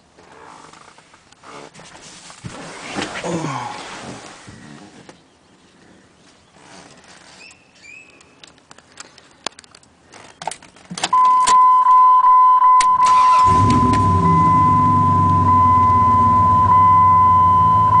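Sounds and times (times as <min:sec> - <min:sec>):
electronic warning tone: 0:11.2 - 0:18.0.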